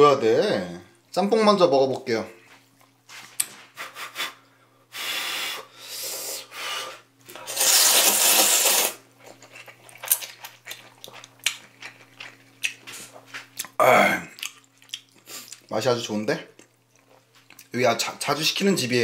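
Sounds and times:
person slurping noodles: 7.3s - 9.0s
wet chewing clicks: 9.2s - 15.7s.

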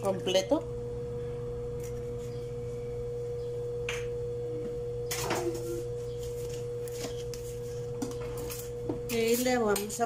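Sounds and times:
steady hum: 0.0s - 10.0s.

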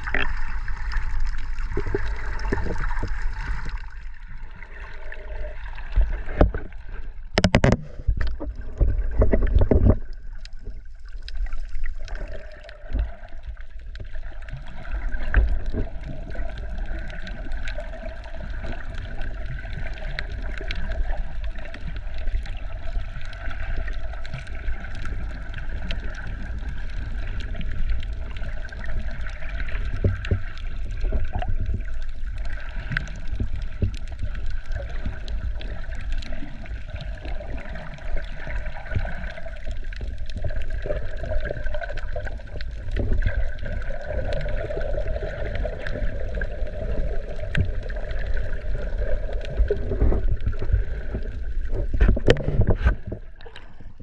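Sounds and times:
water sloshing and gurgling: 0.0s - 54.0s
clicks and knocks: 7.3s - 10.1s.

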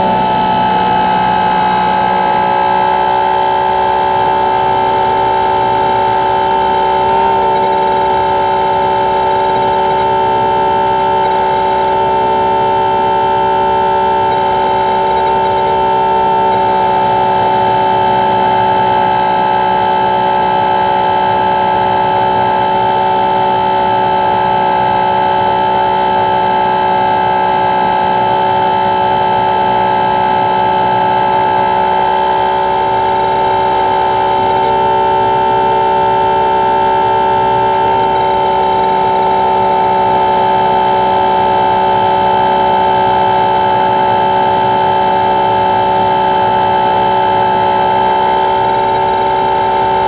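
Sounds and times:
electric motor propeller whine: 0.0s - 50.0s.

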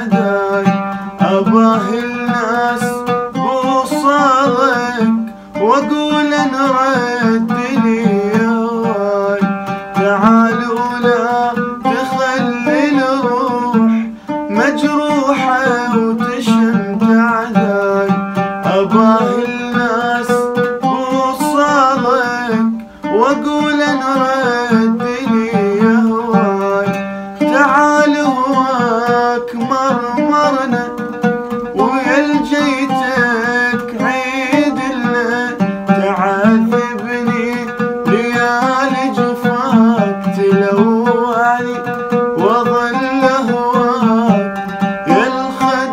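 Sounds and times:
man singing melismatic line: 0.0s - 45.9s
oud plucked rapidly: 0.0s - 45.9s
singer breathing: 0.8s - 1.2s, 5.2s - 5.6s, 14.1s - 14.5s, 22.8s - 23.1s, 27.0s - 27.4s.

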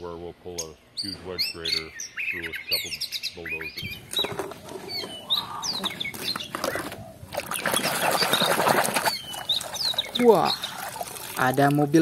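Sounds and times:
birds chirping: 0.0s - 12.0s
water splashing in plastic basin: 6.1s - 12.0s.

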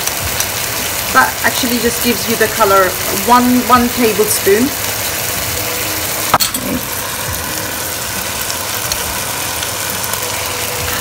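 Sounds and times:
chicken sizzling in oil: 0.0s - 11.0s.

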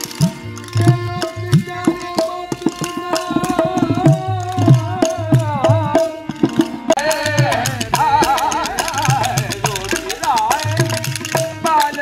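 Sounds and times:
wavering held melody: 7.0s - 11.8s
hand drum strokes: 7.0s - 11.9s.

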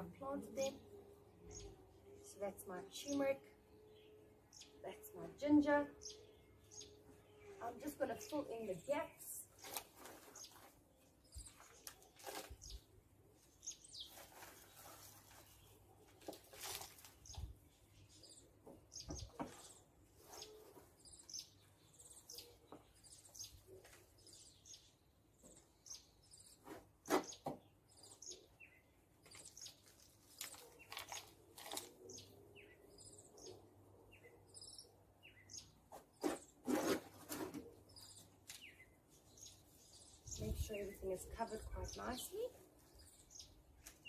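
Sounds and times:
small birds chirping: 0.0s - 44.0s
potting soil scooped by hand: 36.2s - 37.7s.

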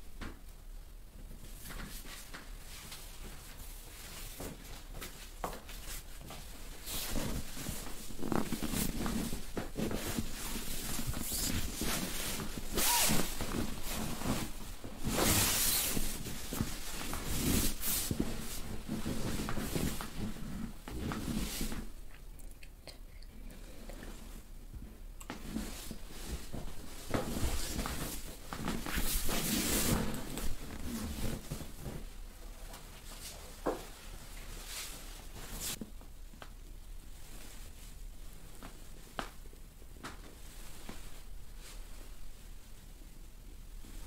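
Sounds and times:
hands rubbing over clothing: 1.6s - 21.9s.

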